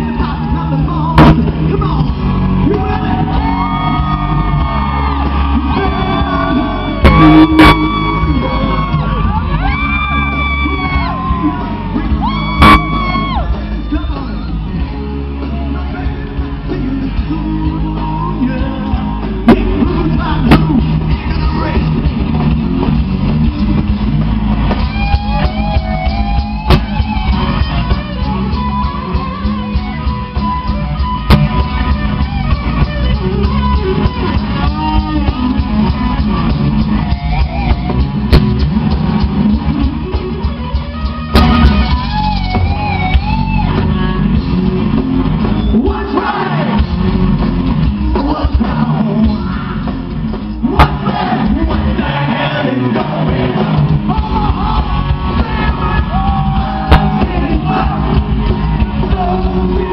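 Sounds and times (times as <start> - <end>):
singer shouting and singing: 0.0 - 22.0, 45.6 - 46.9, 48.0 - 59.9
distorted electric guitar: 0.0 - 59.9
drum kit: 0.0 - 59.9.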